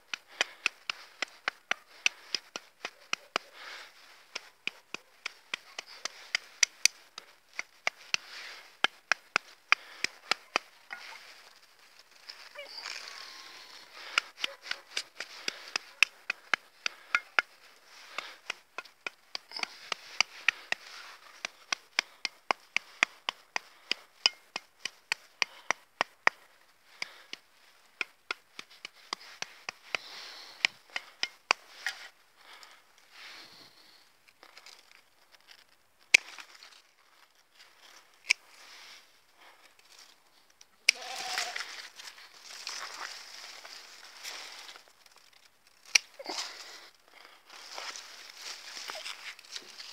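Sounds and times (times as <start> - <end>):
pruning shears snipping: 0.0 - 32.7, 40.8 - 46.8.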